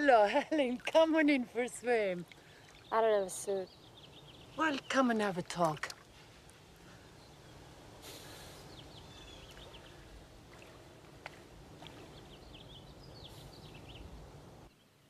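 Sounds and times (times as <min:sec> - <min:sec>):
water swishing in pool: 0:04.6 - 0:07.2, 0:07.9 - 0:14.3.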